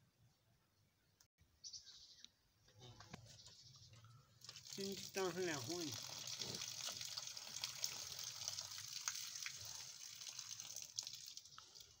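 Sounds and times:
cow urinating onto dirt: 4.4 - 12.0.

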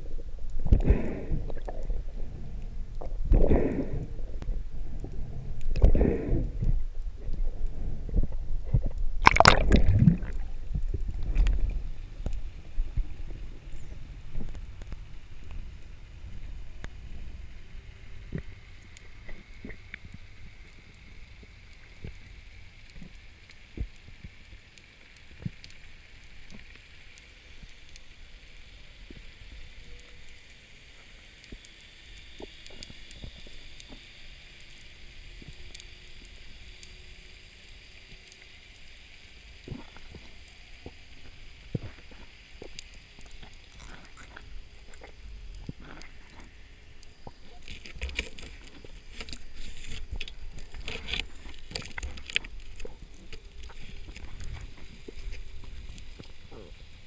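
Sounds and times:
underwater low rumble: 0.0 - 57.0
sharp clicks underwater: 0.4 - 2.0, 2.9 - 13.2, 29.0 - 57.0.

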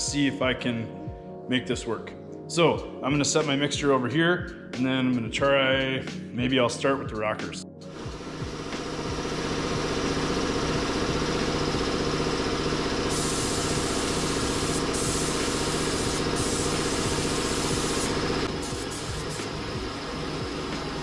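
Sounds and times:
air compressor running: 7.9 - 21.0
spray gun hissing: 13.0 - 19.7.

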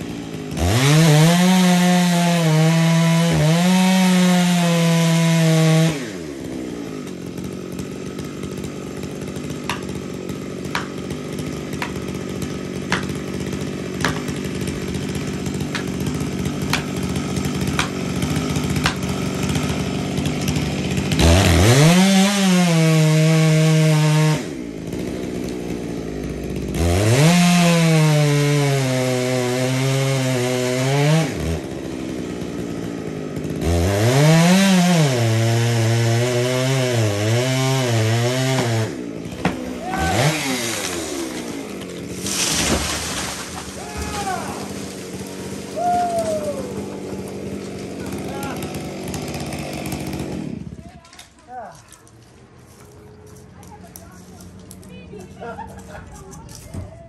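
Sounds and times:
chainsaw cutting tree trunk: 0.0 - 51.7.

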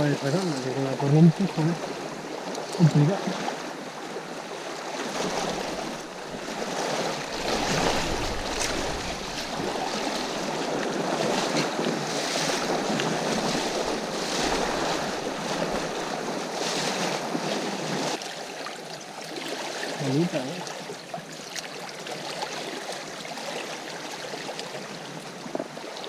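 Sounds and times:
river rushing over stones: 0.0 - 26.0
wind buffeting microphone: 5.2 - 16.5.

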